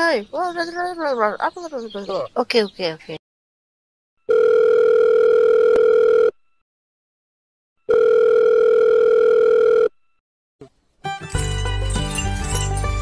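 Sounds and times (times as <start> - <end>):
telephone ringback tone: 4.2 - 6.6, 7.8 - 10.2.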